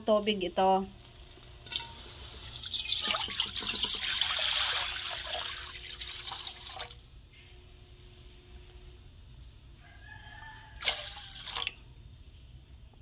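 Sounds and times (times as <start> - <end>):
water splashing into metal wok: 1.6 - 7.3, 10.8 - 12.1.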